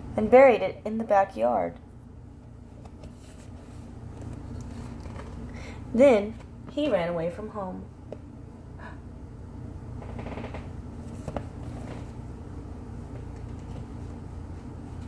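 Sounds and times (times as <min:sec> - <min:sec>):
low room hum: 0:00.0 - 0:15.0
paper pages rustling: 0:02.8 - 0:05.4, 0:11.0 - 0:12.2.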